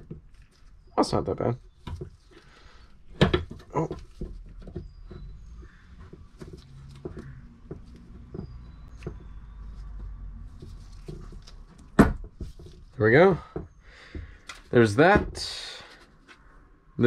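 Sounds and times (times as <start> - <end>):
rustling: 0.0 - 13.1.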